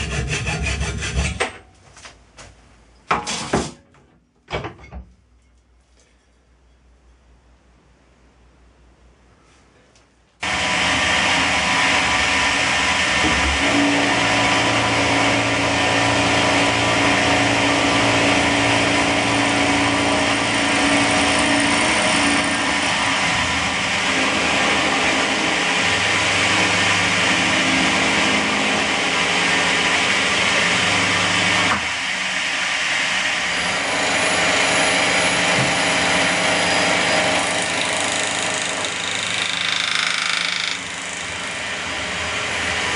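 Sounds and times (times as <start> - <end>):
milling machine cutting metal: 10.4 - 42.9.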